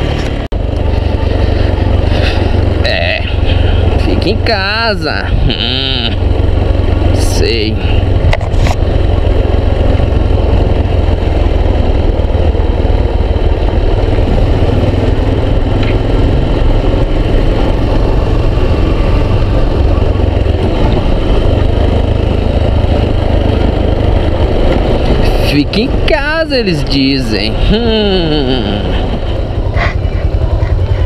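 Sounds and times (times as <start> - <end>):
heavy wind noise: 0.0 - 31.0
motorcycle engine running: 0.0 - 31.0
road rumble: 0.0 - 31.0.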